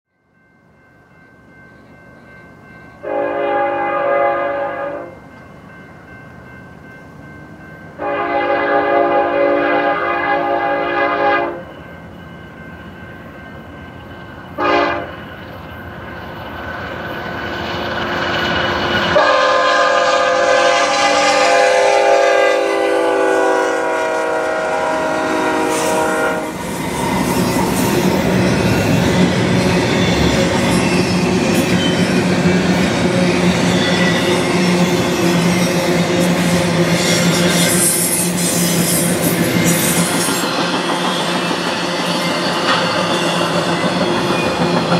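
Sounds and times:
locomotive air horn: 3.0 - 5.2, 8.0 - 11.7, 14.6 - 15.1, 19.2 - 26.6
steel wheels clattering on rail: 25.5 - 44.9.

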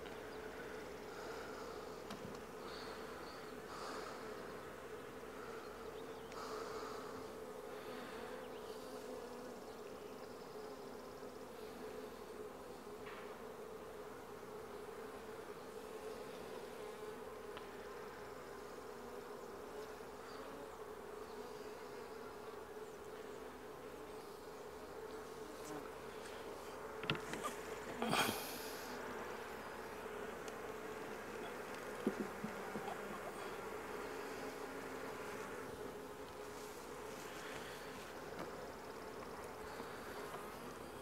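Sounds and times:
bees buzzing: 0.0 - 41.0
wooden hive frames knocking: 26.9 - 28.0, 31.3 - 33.3.

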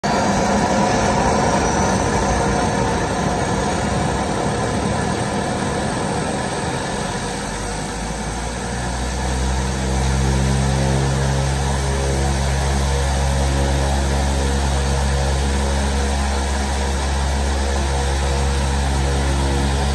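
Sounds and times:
deep engine hum: 0.0 - 19.9
propeller aircraft engine running: 0.0 - 19.9.

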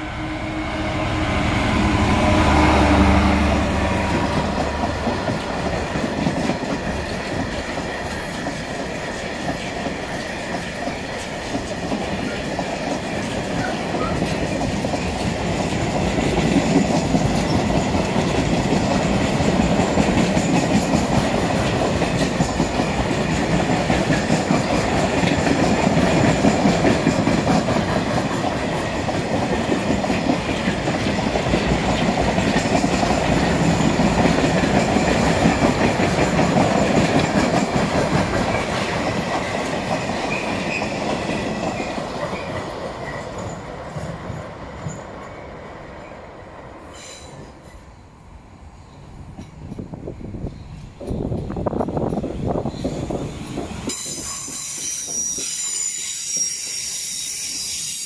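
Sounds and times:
freight train wagons rolling: 1.6 - 46.2, 49.2 - 58.0
wheels clicking over rail joints: 4.0 - 45.3.

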